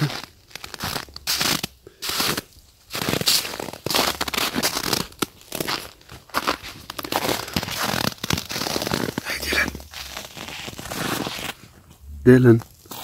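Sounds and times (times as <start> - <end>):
clothing and gear rustling: 2.7 - 13.0.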